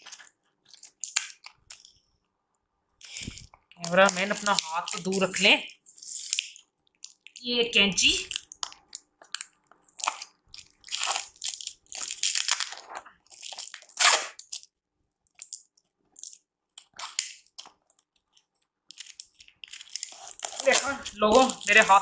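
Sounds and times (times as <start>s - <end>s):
paper tearing and crumpling: 10.9s - 14.6s, 19.0s - 22.0s.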